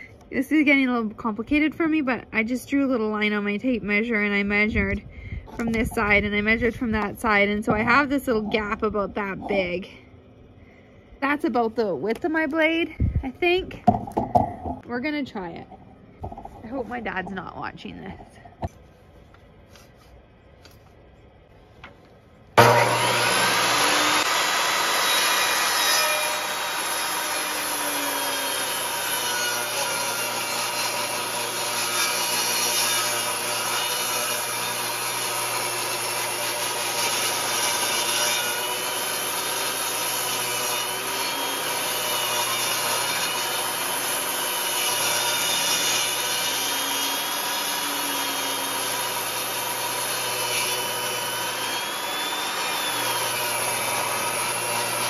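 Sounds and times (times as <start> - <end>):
table saw cutting wood: 22.6 - 55.0.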